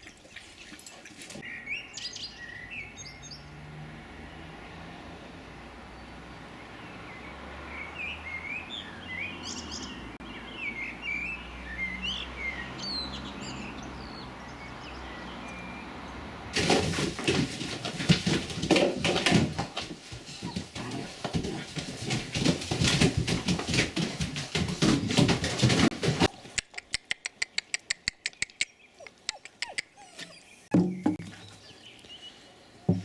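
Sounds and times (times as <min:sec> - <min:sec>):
small birds chirping: 0:01.4 - 0:03.5, 0:06.0 - 0:16.2, 0:26.2 - 0:33.0
puppies' paws scuffling on plastic: 0:16.6 - 0:26.6.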